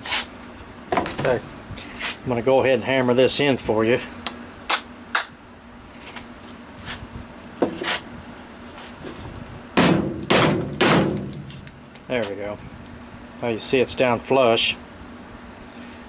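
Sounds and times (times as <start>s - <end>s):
hammer striking bolt into wood: 9.8s - 11.4s.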